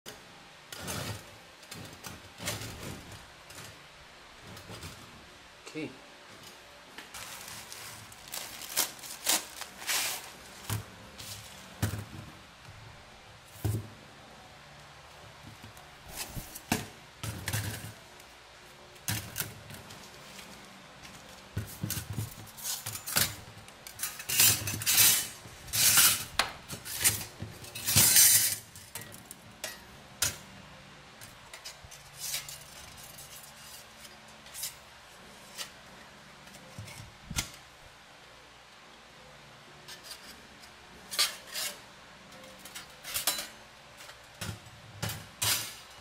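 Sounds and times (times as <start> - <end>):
steel plates clinking and scraping: 26.9 - 30.4, 41.0 - 44.2.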